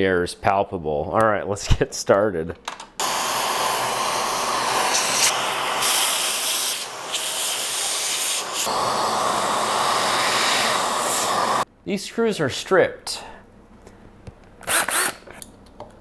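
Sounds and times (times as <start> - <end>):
electric air duster hissing: 3.0 - 11.7.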